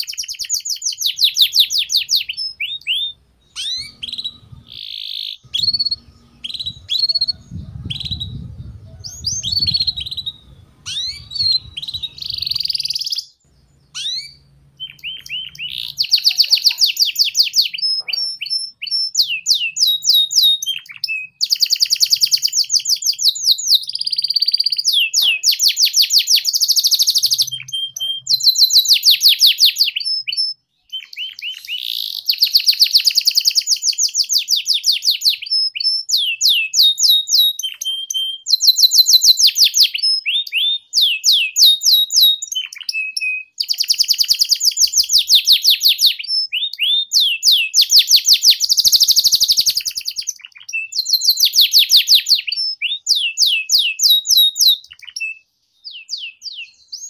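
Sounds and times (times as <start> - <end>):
canary singing: 0.0 - 57.0.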